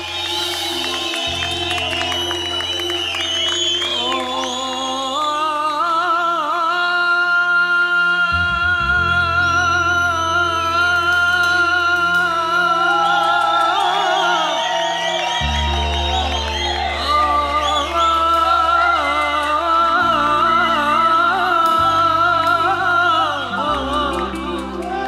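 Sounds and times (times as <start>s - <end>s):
keyboard accompaniment: 0.0s - 25.0s
man singing into a microphone: 3.8s - 15.1s, 16.3s - 25.0s.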